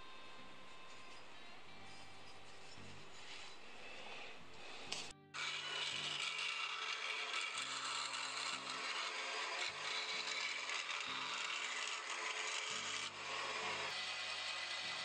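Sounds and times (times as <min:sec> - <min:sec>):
bandsaw cutting wood: 0:04.9 - 0:15.0.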